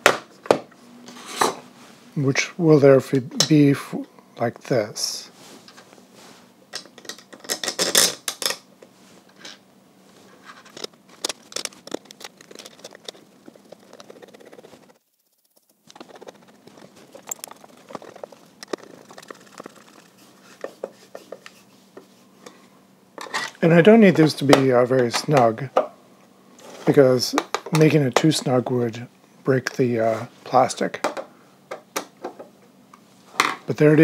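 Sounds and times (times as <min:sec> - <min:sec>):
screws and screwdriver rattling: 0:10.6 - 0:20.2.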